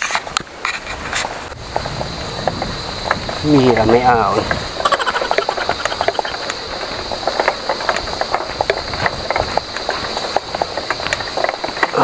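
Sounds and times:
bike frame rattling over bumps: 0.0 - 12.0
steady high hiss: 0.0 - 12.0.

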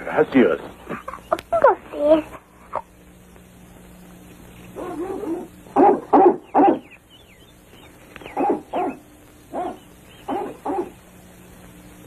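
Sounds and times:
large dog barking: 4.8 - 6.9, 8.3 - 11.0
faint bird chirps: 6.2 - 11.0.

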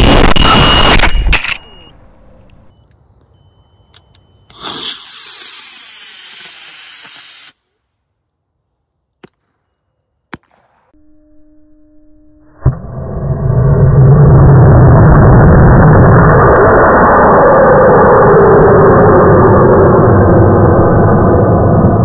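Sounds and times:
rocket motor burning hiss: 4.5 - 7.6
faint steady low tone: 11.0 - 14.0.

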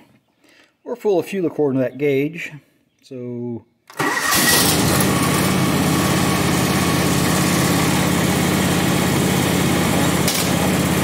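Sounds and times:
lawn tractor engine running: 3.9 - 11.0.

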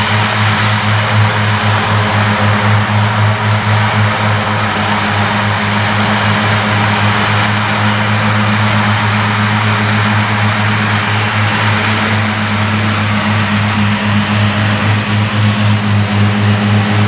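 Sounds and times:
mower cutting grass: 0.0 - 17.0.

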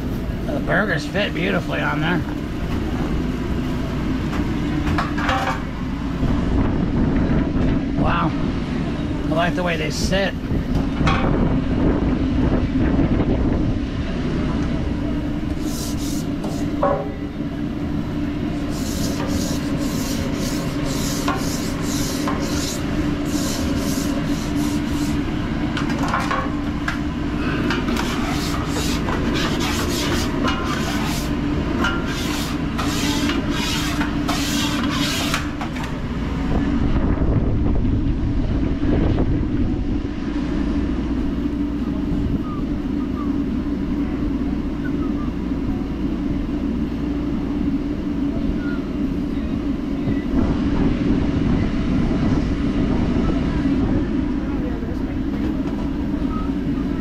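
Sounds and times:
low machine hum: 0.0 - 57.0
short scraping strokes: 15.6 - 16.8, 18.6 - 25.3, 27.8 - 35.6.

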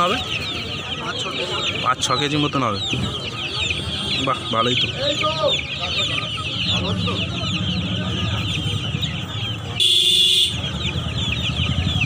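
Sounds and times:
chicks peeping: 0.0 - 12.0
murmur of market bustle: 0.0 - 12.0.

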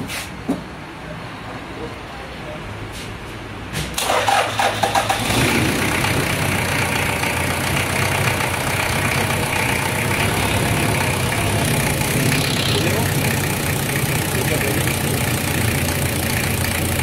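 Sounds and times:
diesel engine cranking and idling: 3.8 - 17.0.

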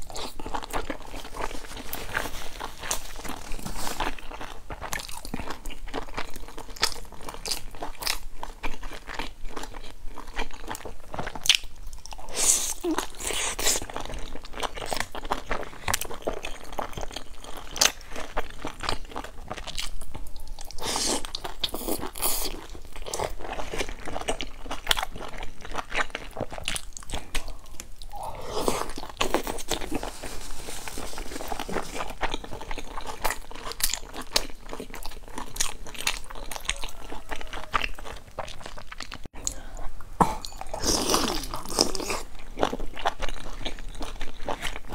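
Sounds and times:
chewing and crunching: 0.0 - 39.7, 40.3 - 44.9
mouth sounds: 27.1 - 29.0.

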